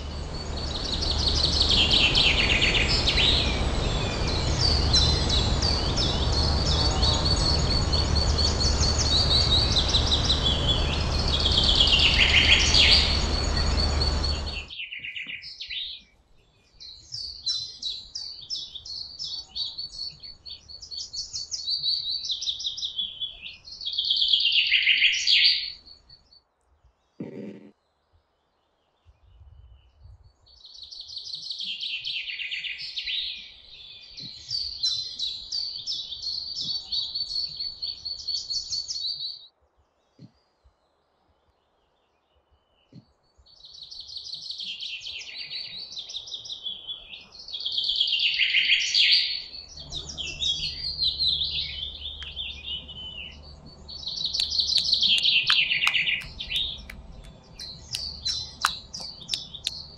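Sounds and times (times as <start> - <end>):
low hum: 0.0 - 14.7, 49.6 - 59.9
high bird-like chirping: 0.0 - 15.2, 49.2 - 59.9
quick clicks: 54.2 - 59.9.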